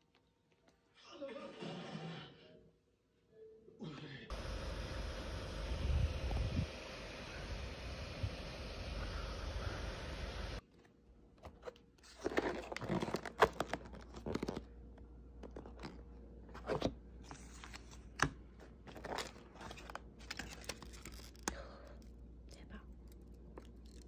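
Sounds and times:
wind noise on microphone: 5.8s - 6.8s
cardboard and foil crinkling: 11.6s - 14.7s, 18.8s - 22.1s.

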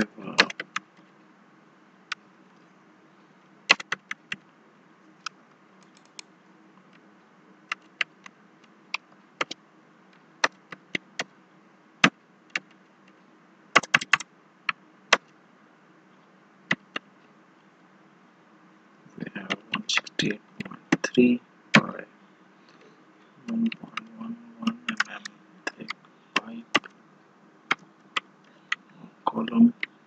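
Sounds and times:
computer keyboard typing: 0.0s - 0.9s, 3.7s - 4.4s, 5.8s - 6.2s, 13.8s - 14.2s, 23.5s - 26.9s
faint steady hum: 0.0s - 30.0s.

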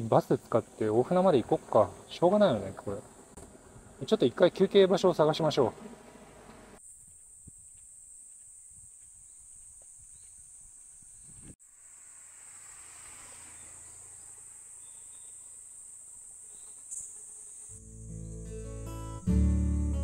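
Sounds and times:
insects droning: 0.0s - 19.4s.

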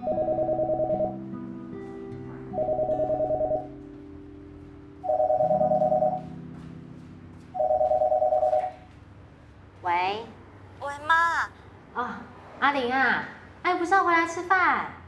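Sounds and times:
landline telephone ringing: 0.0s - 1.3s, 2.6s - 3.8s, 5.0s - 6.4s, 7.6s - 8.8s.

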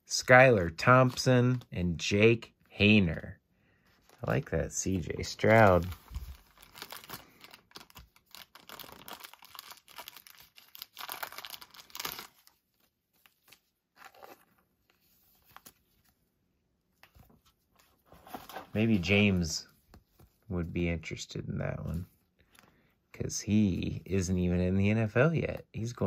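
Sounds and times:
plastic sleeves crinkling: 3.9s - 16.2s.

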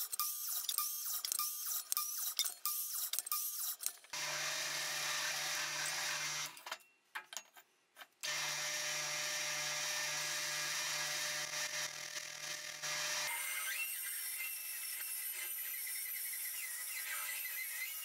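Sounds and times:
drill press boring into wood: 4.2s - 6.6s, 8.2s - 18.0s.

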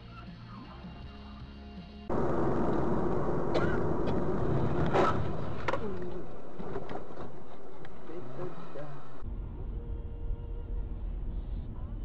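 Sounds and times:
car road and engine noise: 0.0s - 12.0s.

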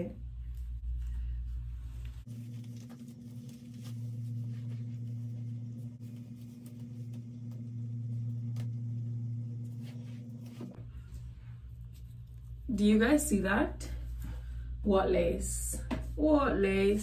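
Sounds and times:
low hum with tones: 0.0s - 17.0s
hands rustling a wig: 0.3s - 7.2s.

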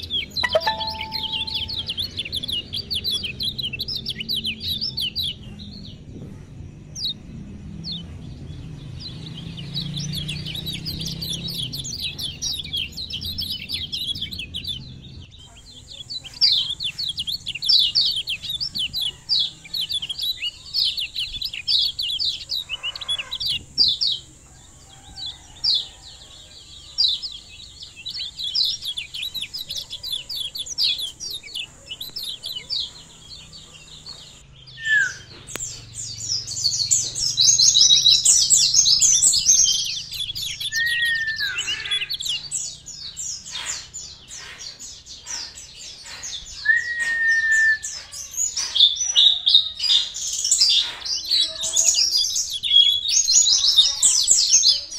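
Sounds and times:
bird chirping rapidly: 0.0s - 4.8s
thin steady high tone: 0.4s - 2.1s
bird whistling down-sliding notes: 46.6s - 47.8s.

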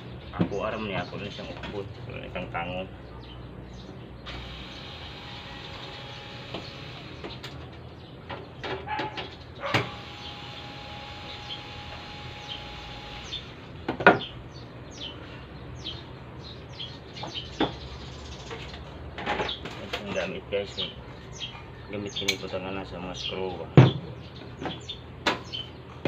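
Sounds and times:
birds chirping: 0.0s - 26.0s
cordless drill whining: 4.3s - 7.3s, 9.8s - 13.6s
sharp knocks and clunks: 13.8s - 14.3s.

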